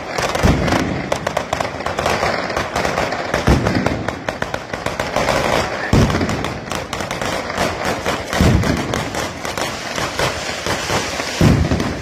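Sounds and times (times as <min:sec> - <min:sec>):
firecrackers crackling: 0:00.0 - 0:12.0
heavy firework boom: 0:05.4 - 0:09.4, 0:10.8 - 0:12.0.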